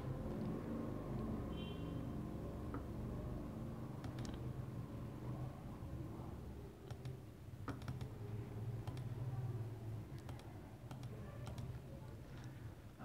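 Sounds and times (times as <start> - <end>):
computer mouse clicks: 4.0 - 4.5, 6.8 - 8.2, 8.8 - 9.2, 10.1 - 12.6.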